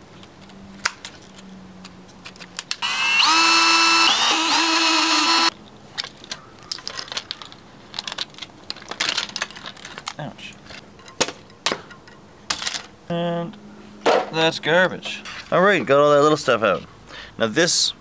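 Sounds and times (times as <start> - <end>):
power drill whining: 2.8 - 5.5
hand tools clicking and clinking: 5.1 - 13.0.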